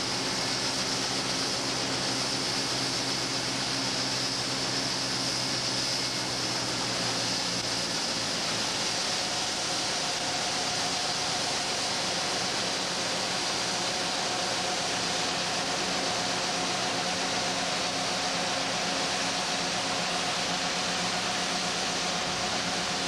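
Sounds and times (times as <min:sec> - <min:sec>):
combine harvesters droning: 0:00.0 - 0:23.0
engine hum: 0:00.0 - 0:23.0
steady whine: 0:00.0 - 0:23.0.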